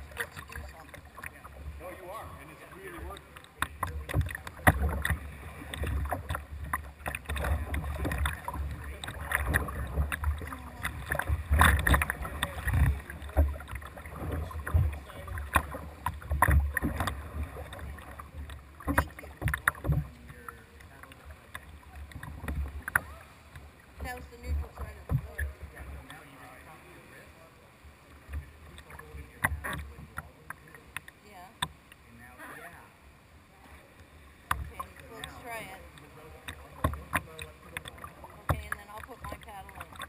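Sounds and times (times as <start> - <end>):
water running off paddle: 0.0 - 27.2, 33.6 - 40.0
paddle blades splashing: 0.0 - 40.0
water rumbling against hull: 0.0 - 40.0.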